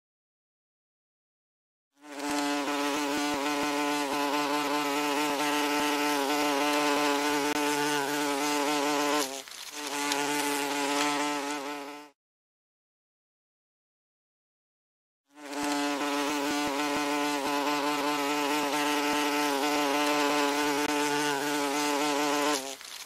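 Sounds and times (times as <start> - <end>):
wasp wings buzzing: 2.0 - 12.2, 15.3 - 23.0.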